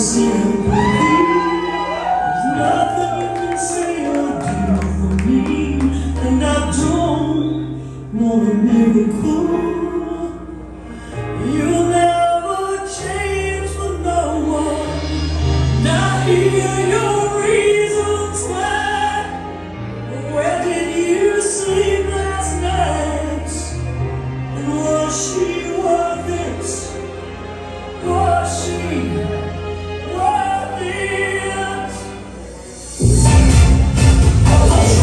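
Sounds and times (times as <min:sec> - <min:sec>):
sustained bass notes: 0:31.4 - 0:35.0.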